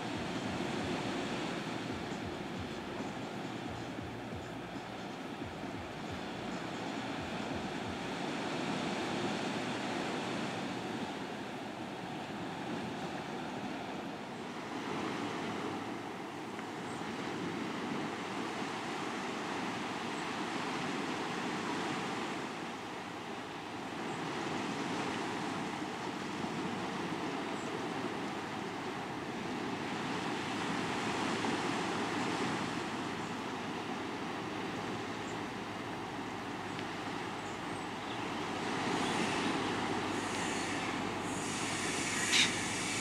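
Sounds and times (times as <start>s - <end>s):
wind: 0.0s - 43.0s
surf rushing: 24.1s - 43.0s.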